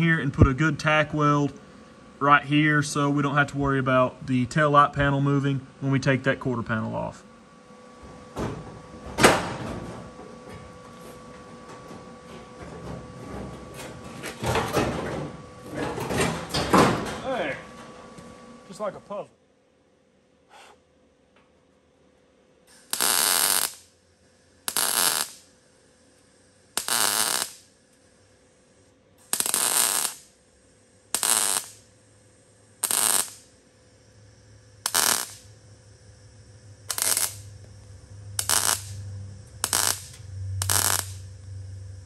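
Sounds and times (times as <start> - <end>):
welder bursts: 22.7 - 24.0, 24.6 - 25.6, 26.6 - 28.0, 29.2 - 41.5.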